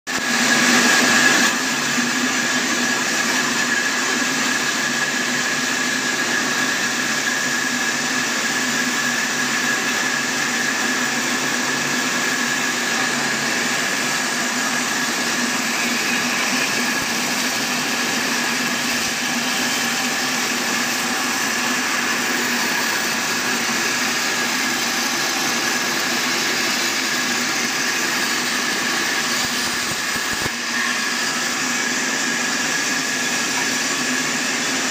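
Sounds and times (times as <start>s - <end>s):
band saw blade cutting log: 8.6s - 34.9s.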